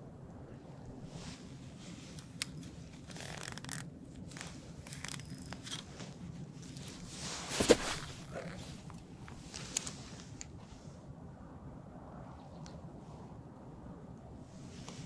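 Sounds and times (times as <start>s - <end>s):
low background rumble: 0.0s - 15.0s
handling clicks and rustles: 1.4s - 10.8s
fishing reel turning: 3.1s - 5.8s.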